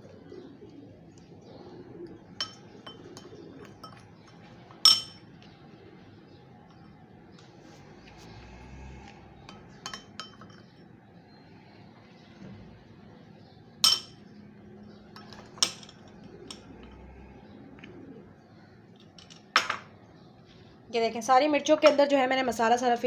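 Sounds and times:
metal spoon clinking on glass bowl: 2.4 - 4.1, 4.8 - 5.2, 9.5 - 10.7, 13.8 - 14.2.

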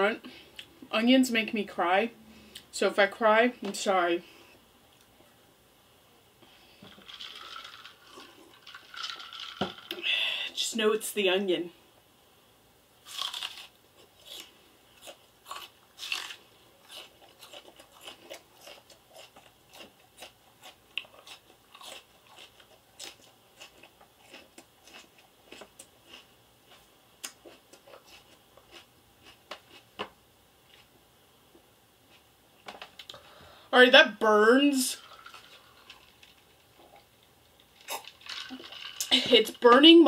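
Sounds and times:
raw onion being chewed: 13.0 - 31.0, 35.1 - 38.7.

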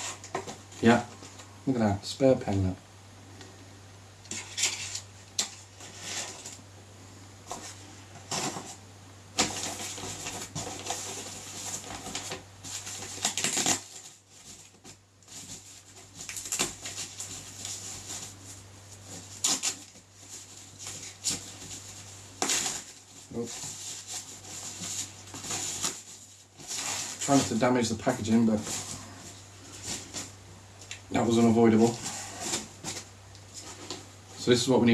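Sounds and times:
packaging rustling and crinkling: 7.5 - 8.8, 9.4 - 34.5.

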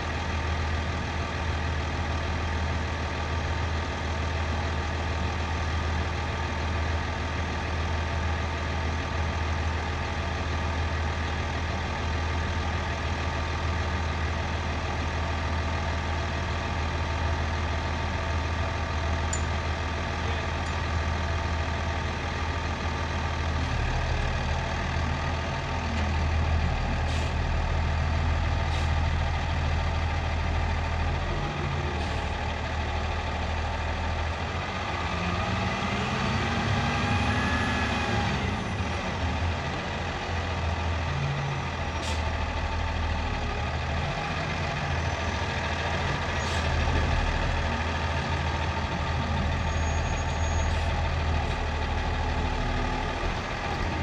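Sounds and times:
diesel engine revving: 19.9 - 54.0.

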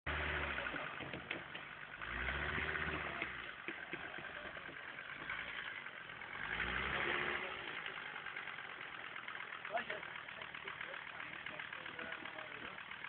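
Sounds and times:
off-road vehicle engine rumble: 0.1 - 13.0.

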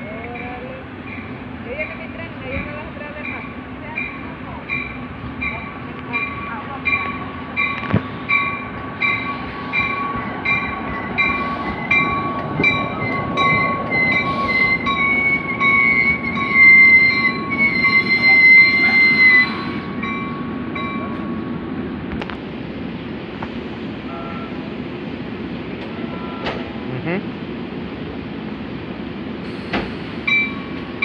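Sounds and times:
rumble of train cars: 0.0 - 31.0
train brakes squealing: 7.6 - 20.5, 24.0 - 24.7, 26.0 - 26.7, 29.4 - 30.8.

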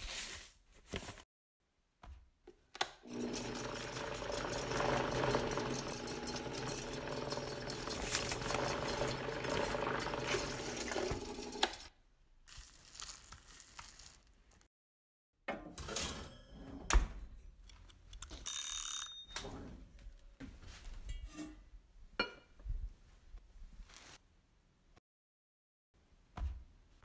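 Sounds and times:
stand mixer motor whirring: 3.0 - 11.9.

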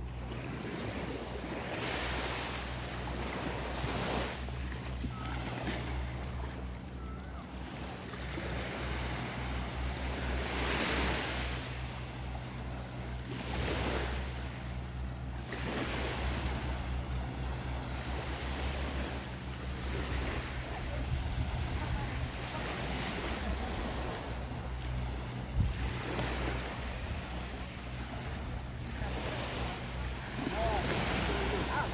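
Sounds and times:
low hum: 0.0 - 31.9
small waves washing onto sand: 0.0 - 31.9
wind on microphone: 25.4 - 27.4.

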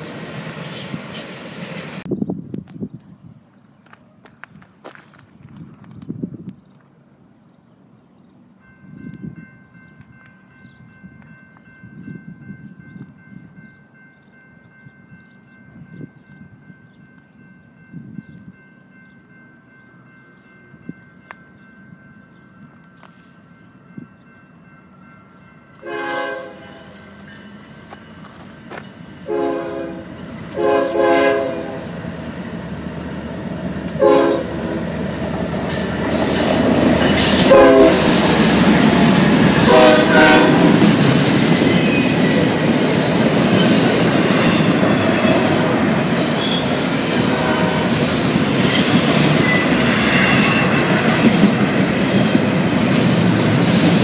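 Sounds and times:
train wheels rumbling on rail: 0.0 - 6.9, 20.1 - 54.0
locomotive horn blasts: 25.8 - 27.0, 29.2 - 31.9, 33.9 - 34.8, 37.1 - 38.4, 39.5 - 40.9, 43.9 - 48.1
high wheel squeal: 43.6 - 46.8, 48.7 - 51.3.

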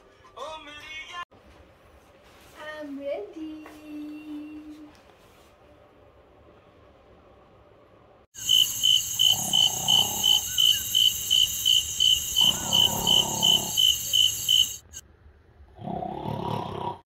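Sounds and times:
crickets chirping: 8.4 - 15.0
low snores: 9.2 - 10.4, 12.4 - 14.0, 15.8 - 17.0.

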